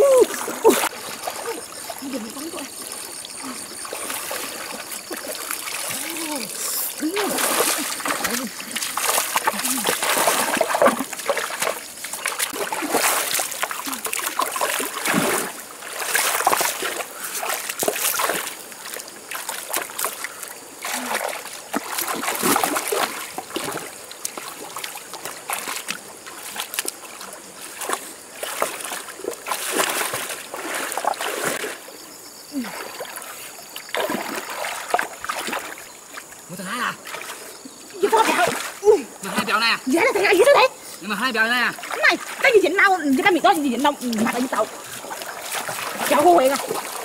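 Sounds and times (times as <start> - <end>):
hands splashing in stream water: 0.0 - 32.0, 32.6 - 36.4, 37.0 - 38.8, 41.7 - 47.0.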